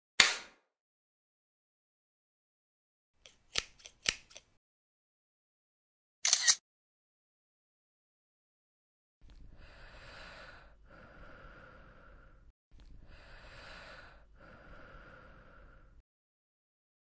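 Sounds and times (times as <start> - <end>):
heavy breathing: 9.5 - 16.0.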